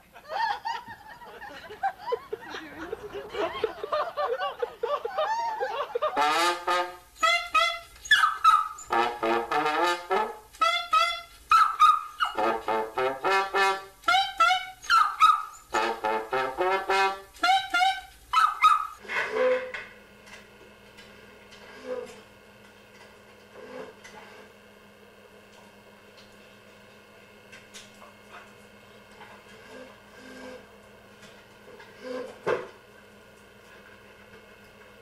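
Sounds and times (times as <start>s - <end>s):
dog howling: 5.1s - 6.0s
trombone: 6.0s - 11.4s, 12.2s - 15.0s, 15.7s - 18.1s.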